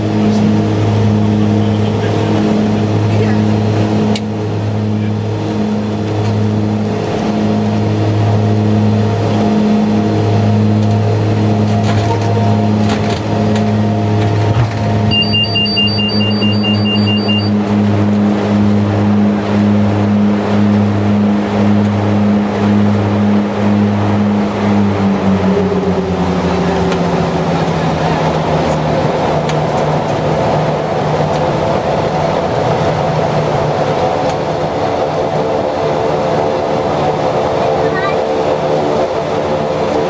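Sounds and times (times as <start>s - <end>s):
turboprop engines droning: 0.0s - 40.0s
rapid cockpit alert beeps: 15.1s - 17.6s.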